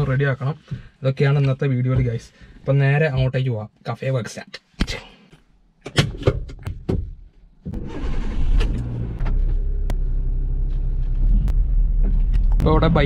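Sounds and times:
car engine starting and idling: 7.6s - 13.0s.

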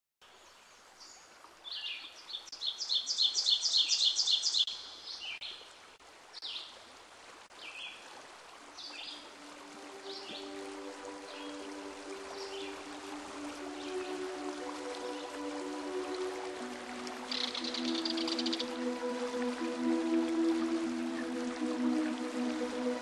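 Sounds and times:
songbirds chirping: 0.2s - 5.7s, 7.5s - 23.0s
soft music with held notes: 8.1s - 23.0s.

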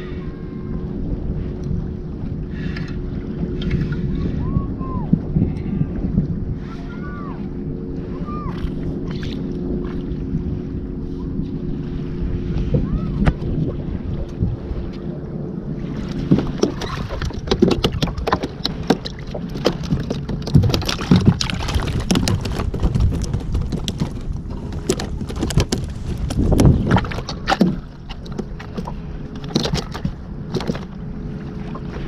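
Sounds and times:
gear knocking against plastic hull: 16.1s - 31.0s.

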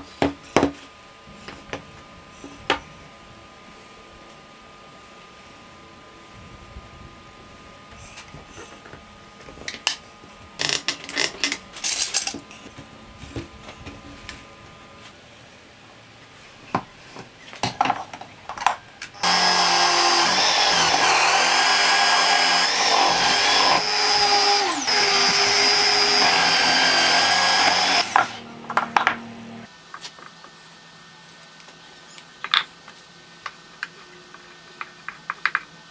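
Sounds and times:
drill press boring into wood: 19.2s - 28.4s.

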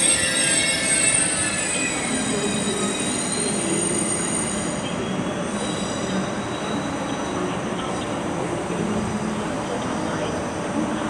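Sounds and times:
train wheels squealing: 0.0s - 8.0s.

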